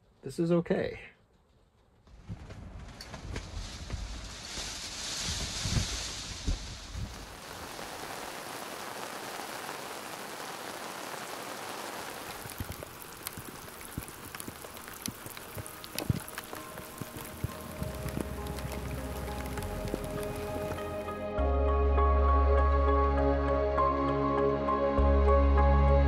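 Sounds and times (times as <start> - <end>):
steady rain falling: 3.0 - 21.3.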